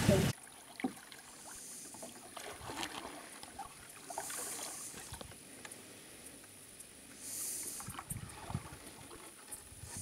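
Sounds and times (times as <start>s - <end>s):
rushing boat noise: 0.0s - 6.4s, 7.1s - 10.0s
water swishing around paddle: 0.0s - 10.0s
light splashes: 0.4s - 5.7s.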